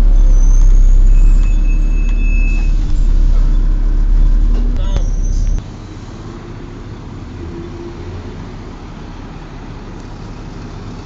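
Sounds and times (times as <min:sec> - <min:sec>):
loud low rumble: 0:00.0 - 0:05.8
bus cooling fan drone: 0:00.0 - 0:11.0.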